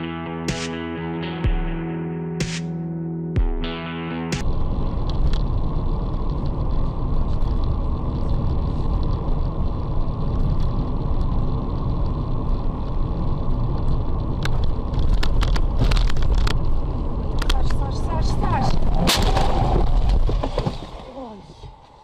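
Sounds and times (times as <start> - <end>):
car driving on wet road: 4.4 - 22.0.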